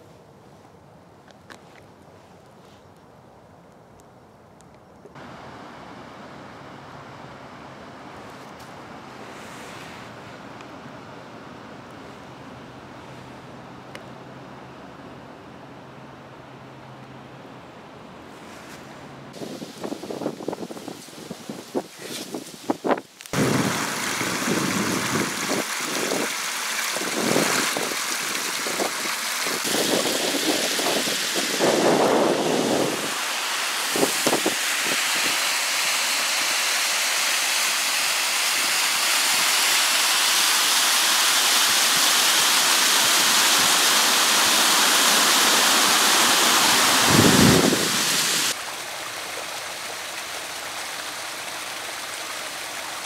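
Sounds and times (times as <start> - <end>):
stream cascading over rocks: 5.2 - 12.6, 19.3 - 53.0
water rushing over a weir: 18.4 - 53.0.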